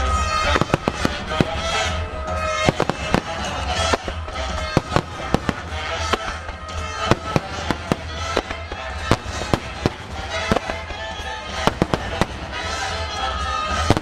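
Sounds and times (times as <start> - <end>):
music playing: 0.0 - 14.0
firework shells bursting: 0.4 - 13.0.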